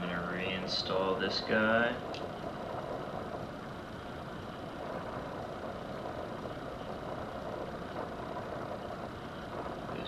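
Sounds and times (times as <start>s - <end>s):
steady hiss: 0.0s - 10.0s.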